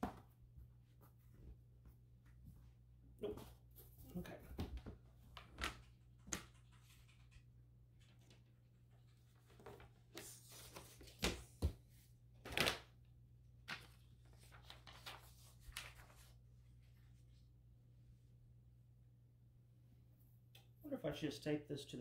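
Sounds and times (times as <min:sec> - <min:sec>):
paper rustling: 0:05.2 - 0:11.8, 0:12.4 - 0:12.9, 0:13.6 - 0:17.2.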